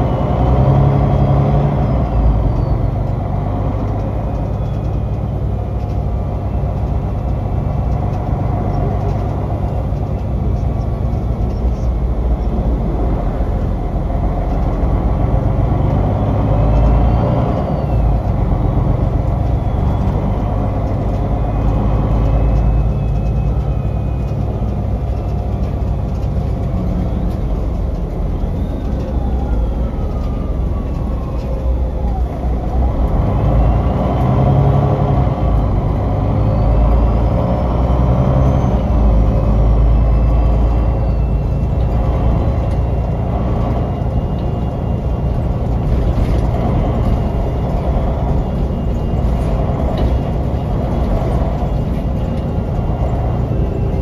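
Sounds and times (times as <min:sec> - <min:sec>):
bus diesel engine rumble: 0:00.0 - 0:54.0
drivetrain whine: 0:00.0 - 0:54.0.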